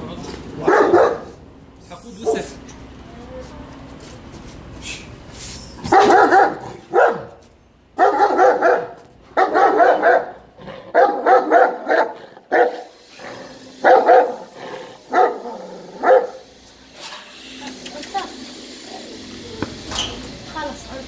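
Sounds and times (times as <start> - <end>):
dog barking loudly: 0.6 - 1.4, 2.2 - 2.6, 5.8 - 7.4, 8.0 - 16.4.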